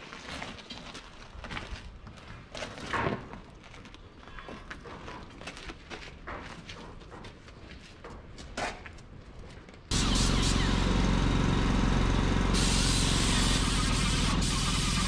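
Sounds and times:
tire scuffs and clanks: 0.0s - 10.4s
compressed air hissing: 9.9s - 11.0s, 12.5s - 15.0s
machine humming: 9.9s - 15.0s.

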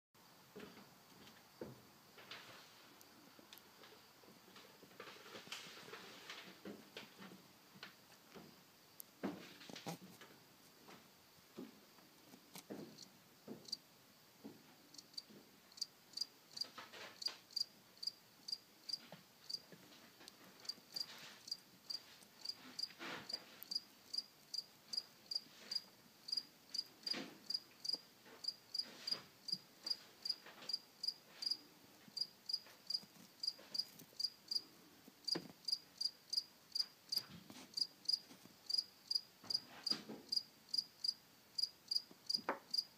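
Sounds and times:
cricket chirping: 12.9s - 13.8s, 14.9s - 19.6s, 20.6s - 42.9s.

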